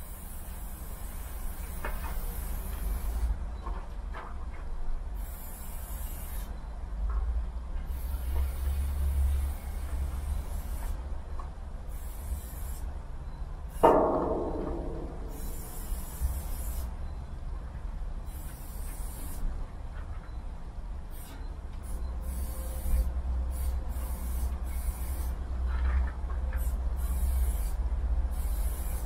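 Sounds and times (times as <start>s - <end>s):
spray paint can spraying: 0.1s - 3.3s, 5.2s - 6.5s, 11.9s - 12.9s, 15.3s - 16.9s, 18.3s - 19.4s, 21.1s - 25.4s, 26.6s - 29.0s
low steady rumble: 12.9s - 18.3s
loud knock: 13.8s - 15.5s.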